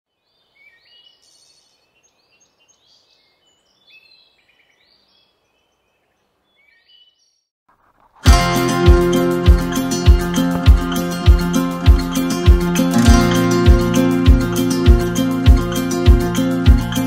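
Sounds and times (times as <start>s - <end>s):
birds chirping and singing: 0.3s - 7.5s
music with a heavy beat: 8.2s - 17.0s.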